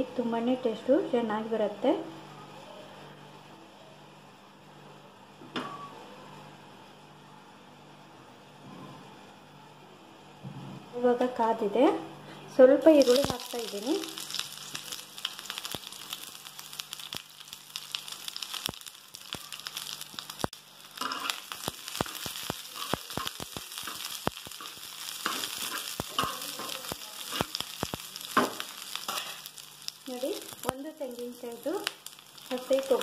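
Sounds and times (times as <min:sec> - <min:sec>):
onions sizzling in oil: 0:12.8 - 0:33.0
metal spoon scraping pan: 0:21.0 - 0:21.4, 0:22.8 - 0:27.5, 0:28.4 - 0:29.5.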